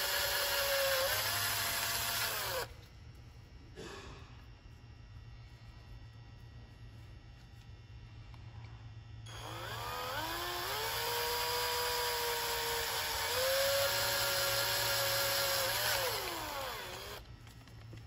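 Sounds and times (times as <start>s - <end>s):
electric drill drilling metal: 0.0s - 2.7s, 9.3s - 17.2s.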